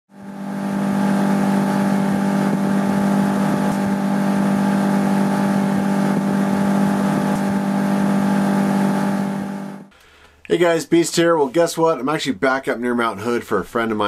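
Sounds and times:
low droning hum: 0.2 - 9.9.

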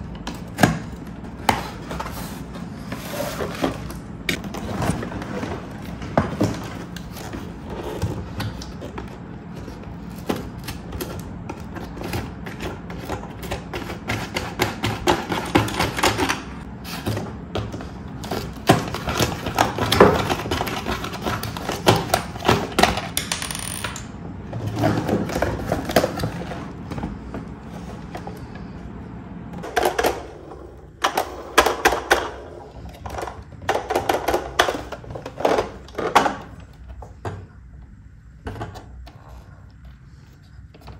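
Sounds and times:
cardboard rustling and scraping: 1.2 - 13.5.

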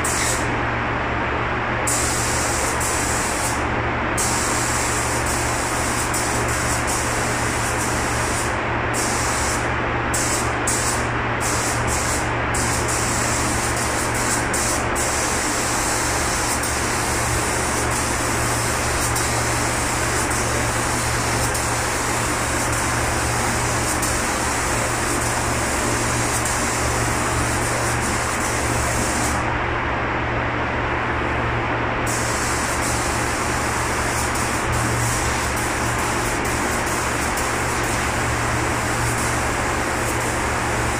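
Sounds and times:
spray gun hissing: 0.0 - 0.5, 1.9 - 3.6, 4.2 - 9.6, 10.2 - 29.4, 32.1 - 40.9
ventilation hum: 0.0 - 40.9.

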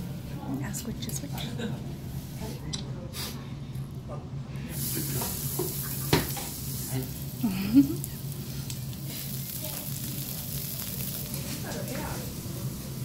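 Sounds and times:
meat sizzling on a griddle: 4.8 - 13.0.

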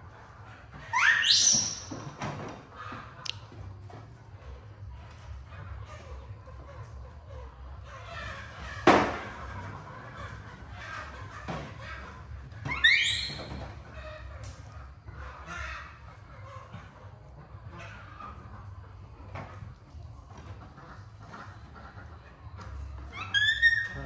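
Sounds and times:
squealing animal call: 0.8 - 2.0, 10.1 - 14.4, 23.0 - 24.0.

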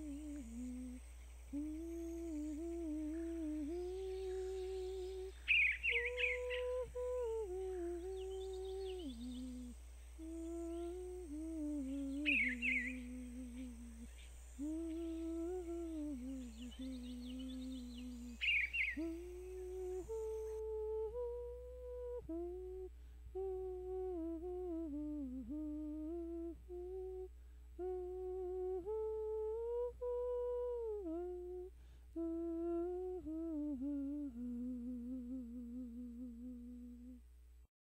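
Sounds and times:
person humming a slow melody: 0.0 - 37.4
bird chirps: 2.2 - 9.7, 11.8 - 20.6.

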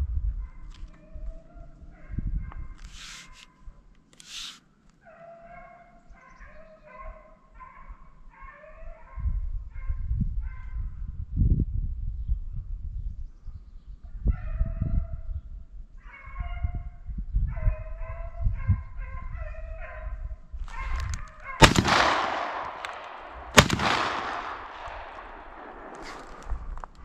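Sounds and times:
echoing shotgun blasts: 21.6 - 26.7.

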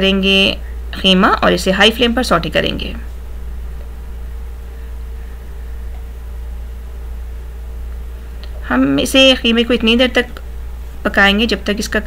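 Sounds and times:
constant low hum: 0.0 - 12.0.

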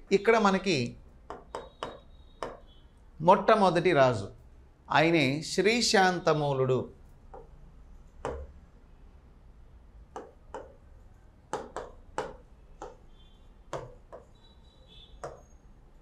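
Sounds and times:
chalk tapping on blackboard: 1.2 - 2.7, 8.2 - 8.5, 10.1 - 10.8, 11.5 - 13.1, 13.7 - 14.4, 15.2 - 15.5.

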